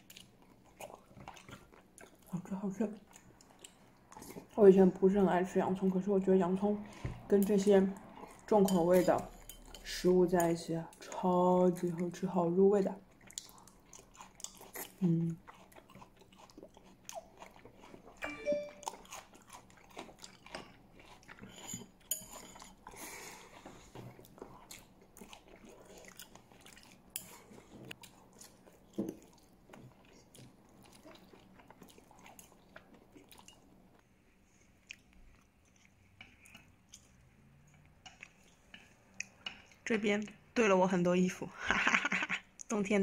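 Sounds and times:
person chewing food: 0.0 - 2.4, 3.0 - 4.6, 13.1 - 34.0, 34.6 - 39.8.

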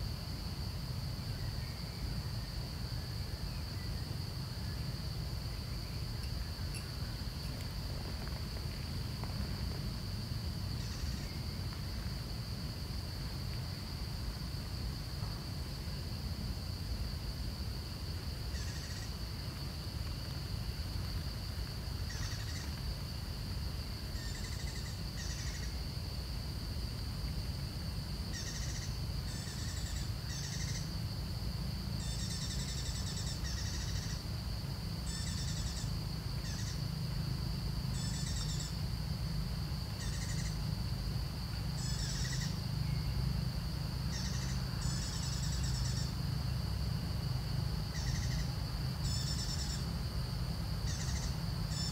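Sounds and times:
high insect drone: 0.0 - 51.9.

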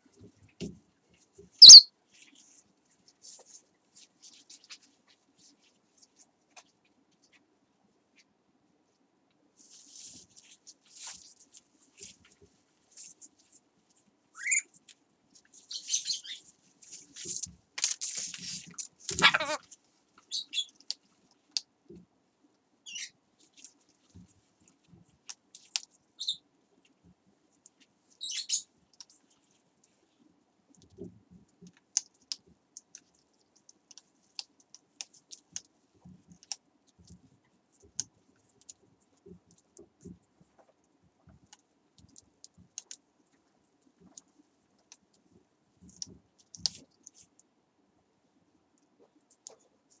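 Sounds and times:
beaks and claws tapping: 1.6 - 1.9
parrot squeaks: 1.6 - 1.9, 14.4 - 14.7.

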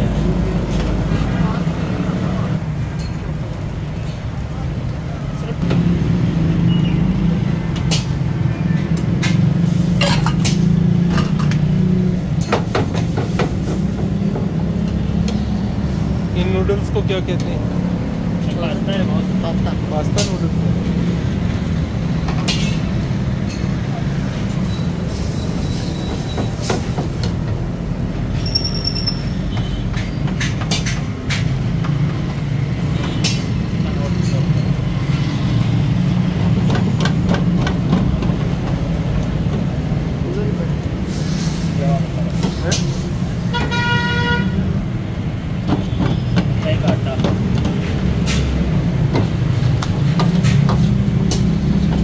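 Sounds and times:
gas burner rushing: 0.1 - 19.2, 19.9 - 28.6, 30.3 - 43.8
high metallic squeal: 28.4 - 29.5.

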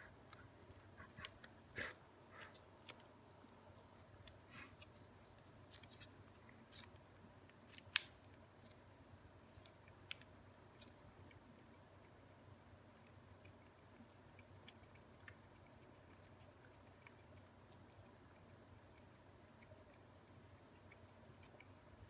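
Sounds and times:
cat licking: 9.4 - 22.0.

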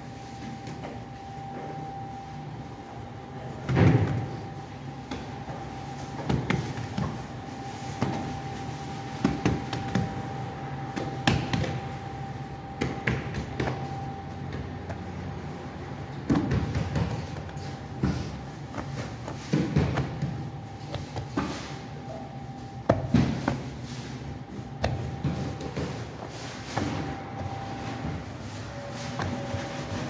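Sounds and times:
bakery machinery humming: 0.0 - 30.0.

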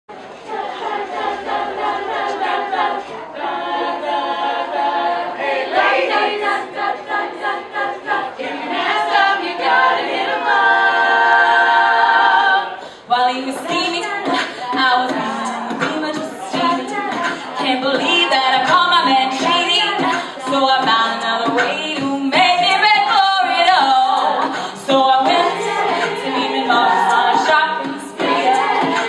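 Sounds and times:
women singing a cappella: 0.3 - 29.0.

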